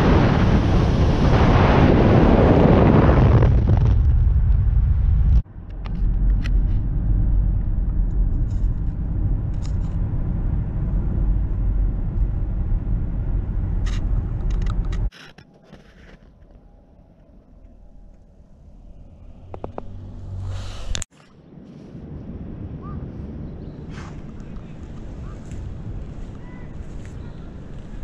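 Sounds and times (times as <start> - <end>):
wind and road noise: 0.0 - 28.0
tyres rumbling on road: 4.8 - 15.1.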